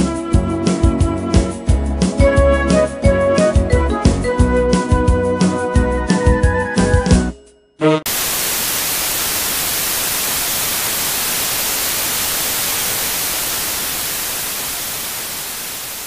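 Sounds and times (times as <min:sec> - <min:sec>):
television static hiss: 0:08.1 - 0:16.0.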